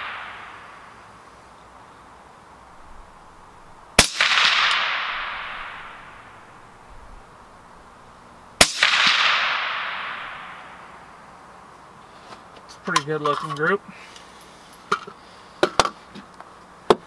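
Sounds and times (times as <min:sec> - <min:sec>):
suppressed rifle shots: 0:04.0 - 0:06.5, 0:08.6 - 0:11.0.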